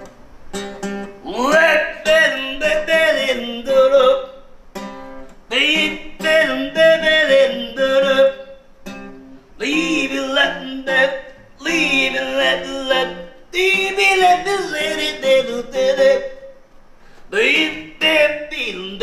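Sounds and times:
acoustic guitar strumming: 0.0 - 19.0
man singing loudly: 1.2 - 4.4, 5.5 - 8.6, 9.6 - 16.6, 17.3 - 19.0.

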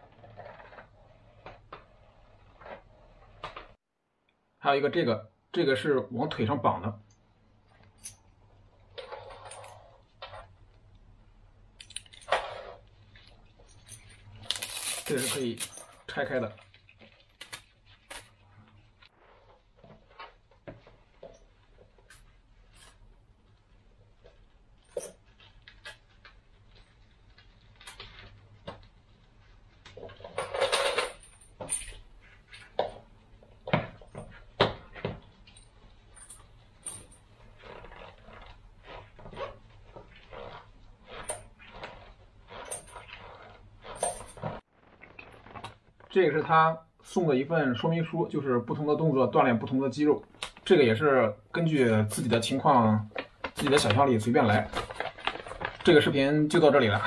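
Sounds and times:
rustling scrape: 8.6 - 10.6, 12.2 - 23.1, 36.2 - 46.0
fabric strap rustling: 11.8 - 30.4, 31.2 - 46.2, 53.1 - 56.1.

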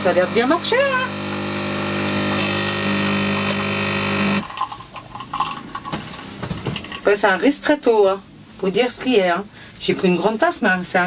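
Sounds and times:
coffee machine pump buzzing: 0.0 - 5.9.

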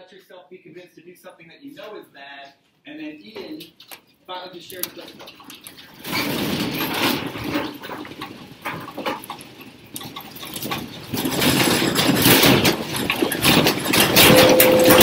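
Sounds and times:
desks and chairs clattering: 4.7 - 15.0
earthquake rumbling and rattling: 5.1 - 15.0.

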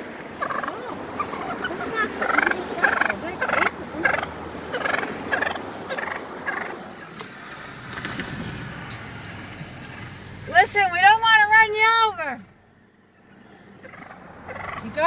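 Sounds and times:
turkey gobbling: 0.3 - 7.1, 13.6 - 15.0.

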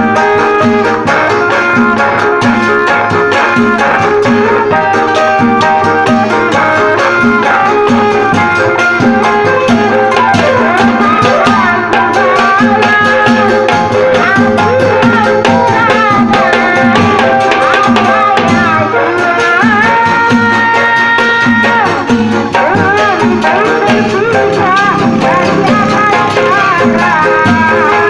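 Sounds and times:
hand drums quick rhythm: 0.0 - 28.0
wavering gliding melody: 22.7 - 28.0.

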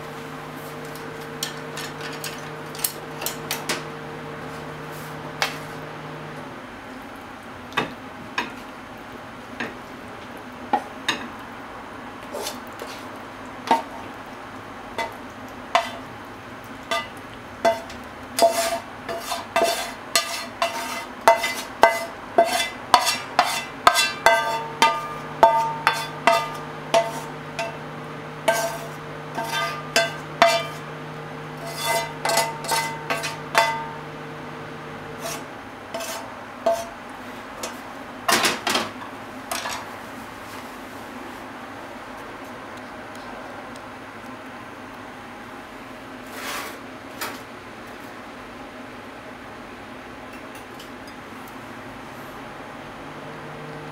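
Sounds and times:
metal utensil scraping frying pan: 15.8 - 16.0, 16.9 - 34.0, 35.1 - 37.0
low steady hum: 23.6 - 37.1.

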